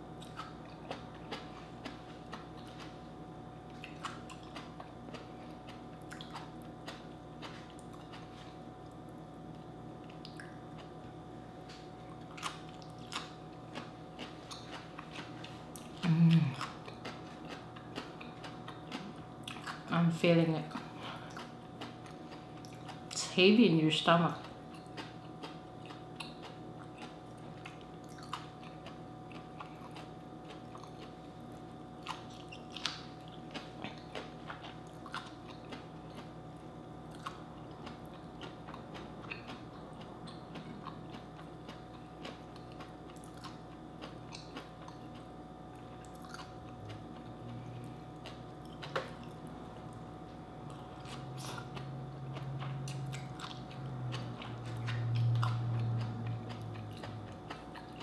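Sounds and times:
person chewing and crunching: 0.1s - 58.0s
low hum: 44.3s - 58.0s.

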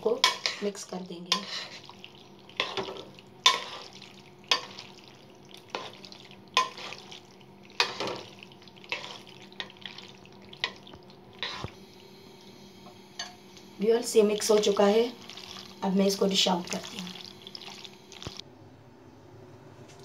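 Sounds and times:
spatula scraping a metal pot: 0.2s - 1.9s, 2.6s - 4.7s, 5.7s - 7.1s, 11.4s - 11.8s.

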